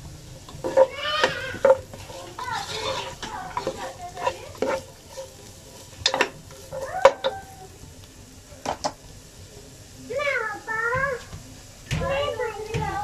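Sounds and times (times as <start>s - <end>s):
spatula knocking and scraping pan: 0.0s - 7.6s, 8.6s - 9.1s, 10.8s - 13.0s
oil sizzling gently: 0.0s - 13.0s.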